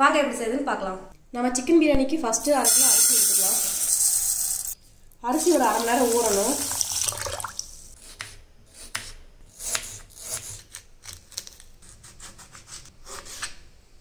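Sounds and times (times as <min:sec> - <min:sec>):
running tap water: 0:02.6 - 0:07.9
knife cutting on wooden board: 0:08.0 - 0:13.6.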